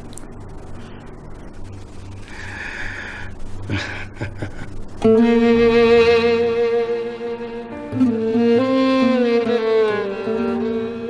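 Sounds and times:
breathy laughter: 3.7s - 4.8s.

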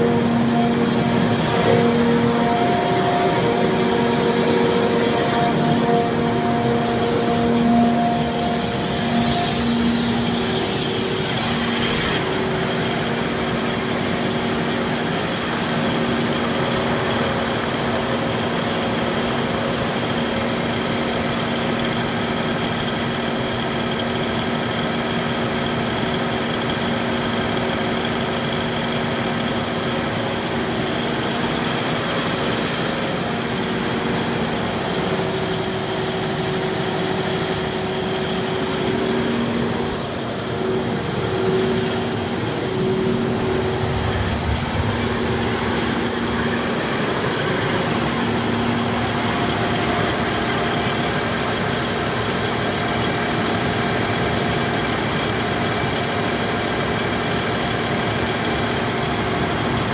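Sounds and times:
diesel generator droning: 0.0s - 59.9s.

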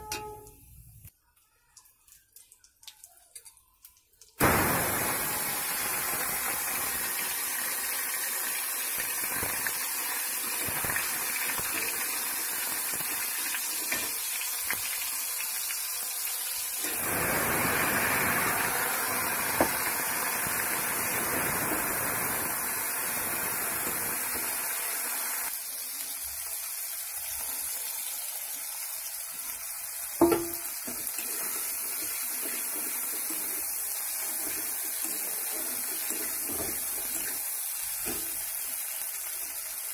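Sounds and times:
paste sizzling in hot oil: 4.4s - 39.9s
utensil clacking on pan: 30.2s - 31.0s.

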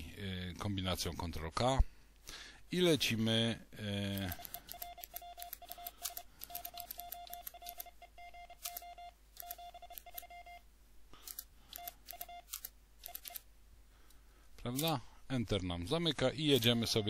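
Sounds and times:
morse code sidetone beeping: 4.2s - 10.7s, 11.8s - 13.4s, 16.5s - 17.0s.

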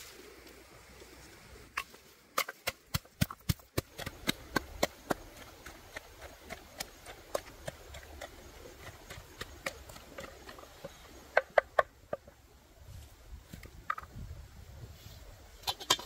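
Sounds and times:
wooden pestle pounding in mortar: 2.7s - 10.7s.

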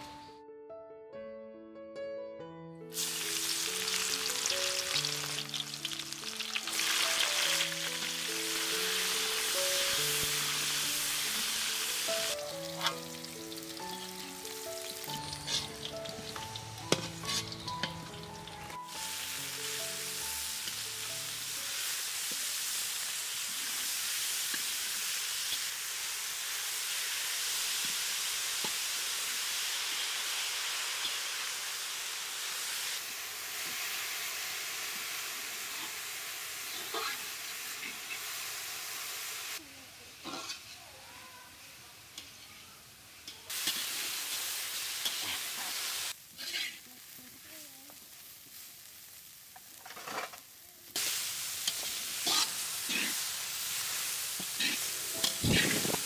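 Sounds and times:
music: 0.0s - 23.5s, 53.9s - 56.0s
spinach sizzling in hot oil: 2.9s - 56.0s
metal spatula scraping pan: 15.3s - 16.2s, 16.8s - 18.1s, 40.3s - 40.8s, 46.4s - 46.8s, 51.7s - 53.2s.

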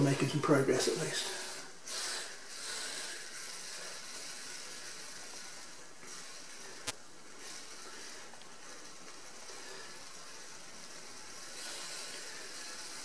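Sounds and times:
aerosol spray hissing: 0.9s - 8.9s.

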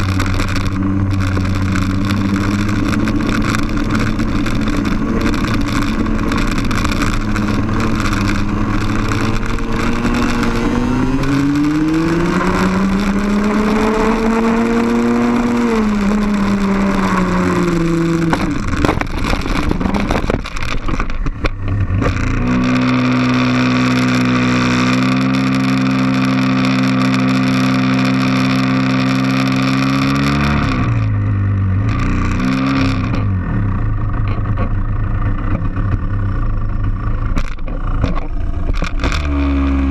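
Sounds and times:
wind noise: 0.0s - 31.2s
kart engine revving: 0.0s - 39.9s.

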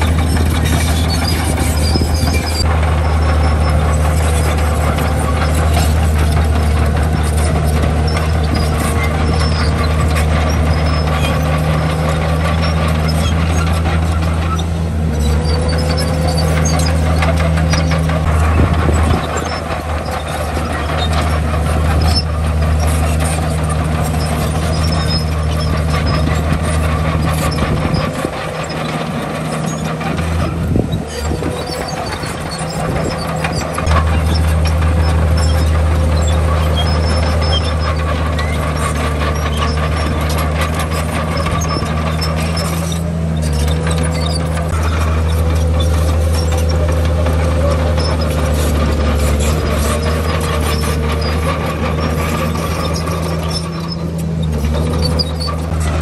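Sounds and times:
diesel machinery engine drone: 0.0s - 56.0s.

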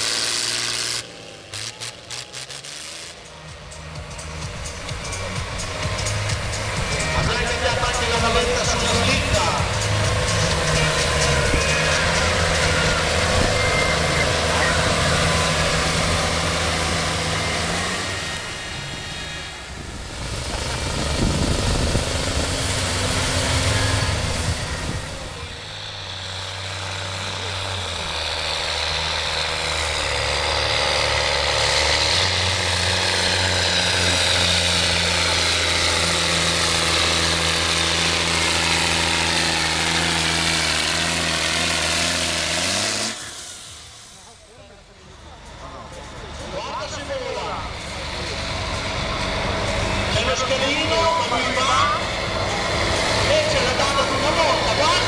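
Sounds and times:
high whine rising in pitch: 0.0s - 25.7s
tractor diesel engine under load: 0.0s - 55.0s.

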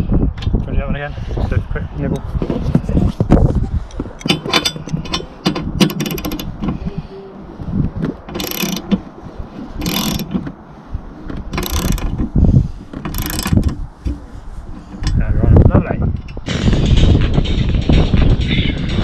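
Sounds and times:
socket ratchet wrench clicking: 5.8s - 6.5s, 8.4s - 8.9s, 9.8s - 10.3s, 11.6s - 12.1s, 13.1s - 13.7s.

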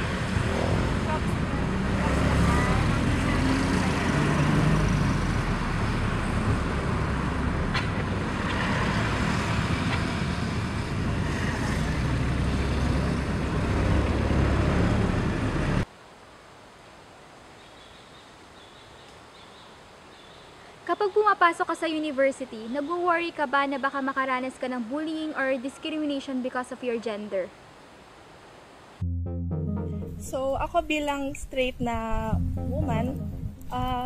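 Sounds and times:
road and engine rumble: 0.0s - 15.9s
faint outdoor background: 0.0s - 34.0s.

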